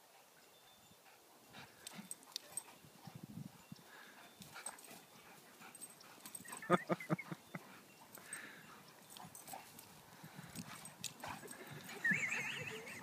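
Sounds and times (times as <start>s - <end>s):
dogs whimpering: 5.8s - 7.8s, 11.2s - 13.0s.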